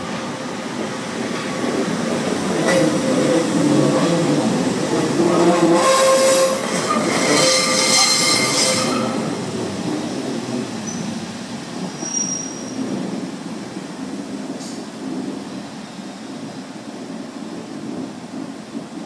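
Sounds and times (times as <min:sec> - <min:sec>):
diesel train engines running: 0:00.0 - 0:12.1
train wheels squealing: 0:05.8 - 0:09.3, 0:10.8 - 0:11.2, 0:11.8 - 0:12.8.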